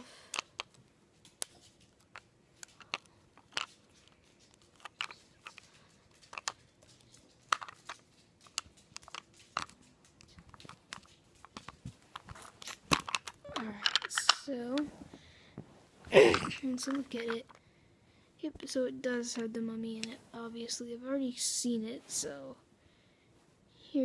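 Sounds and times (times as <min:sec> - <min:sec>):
small clicks and taps: 0:00.3 - 0:14.9.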